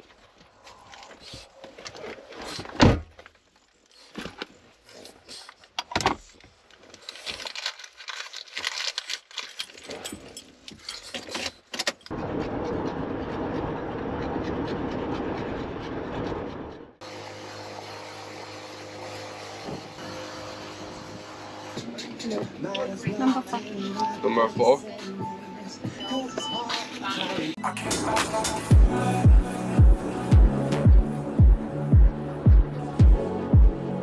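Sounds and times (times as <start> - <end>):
keys jangling: 9.0 - 12.1.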